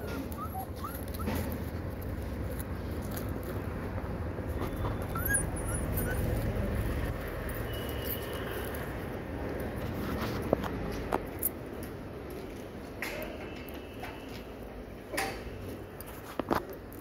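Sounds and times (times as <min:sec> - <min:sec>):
puppies whimpering: 0:00.0 - 0:01.8, 0:04.9 - 0:06.8.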